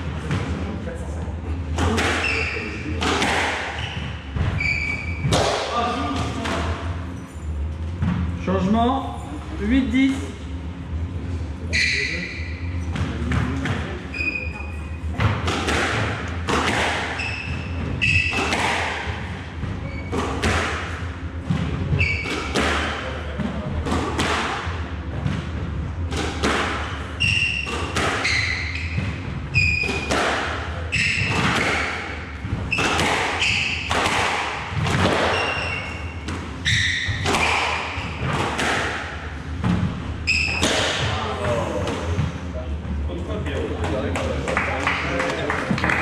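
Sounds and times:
squash ball impacts: 1.7s - 7.1s, 15.1s - 42.5s
shoes squeaking on floorboards: 2.2s - 2.8s, 3.7s - 5.4s, 14.1s - 15.0s, 17.1s - 18.6s, 19.8s - 20.4s, 21.9s - 22.5s, 26.9s - 30.2s, 30.9s - 32.0s, 32.6s - 34.0s, 35.0s - 38.3s, 40.2s - 40.8s.

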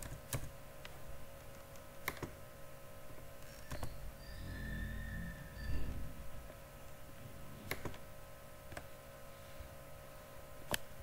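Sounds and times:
computer keyboard and mouse clicks: 0.0s - 0.5s, 1.4s - 2.4s, 7.7s - 8.0s
low steady hum: 0.0s - 11.0s.

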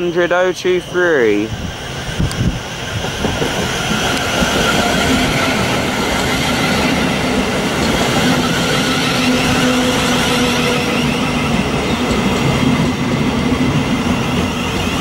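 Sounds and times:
train rumbling along rails: 0.0s - 15.0s.

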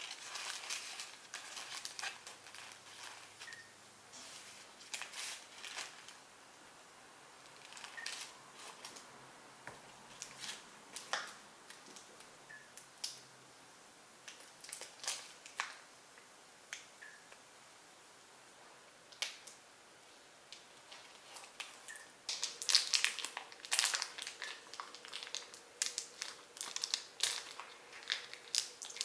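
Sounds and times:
paper wrapper crinkling: 0.0s - 6.3s, 7.4s - 9.1s, 10.1s - 12.3s, 14.3s - 15.9s, 20.6s - 29.0s.

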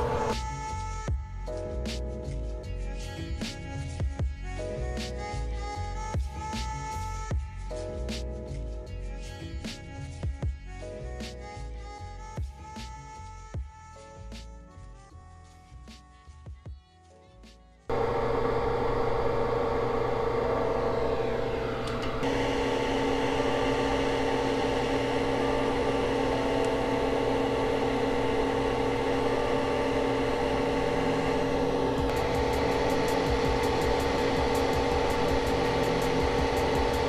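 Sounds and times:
hot-air station fan whine: 0.0s - 0.6s, 17.9s - 37.0s.

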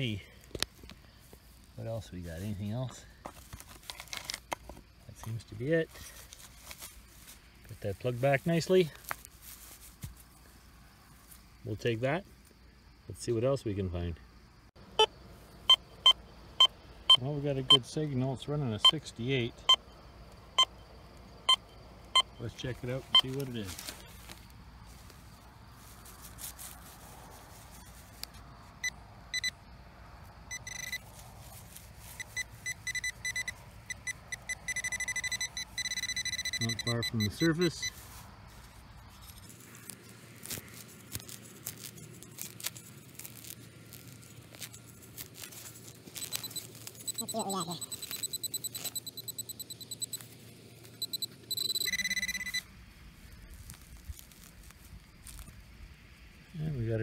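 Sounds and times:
soil and grass rustling: 0.0s - 14.1s, 14.8s - 57.0s
pinpointer steady tone: 14.8s - 23.9s, 28.8s - 29.7s, 30.5s - 31.1s, 32.0s - 38.2s, 43.4s - 54.4s
high-pitched probe beeps: 28.8s - 29.6s, 30.5s - 31.0s, 32.2s - 38.0s, 46.2s - 50.3s, 51.0s - 52.7s.

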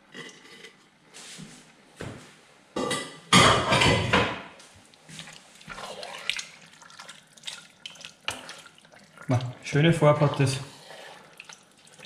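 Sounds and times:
wooden spoon stirring wet vegetables: 4.9s - 12.0s.

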